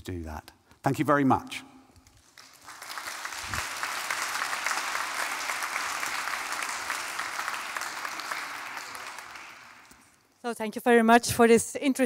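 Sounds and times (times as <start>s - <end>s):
audience applauding: 2.2s - 10.2s.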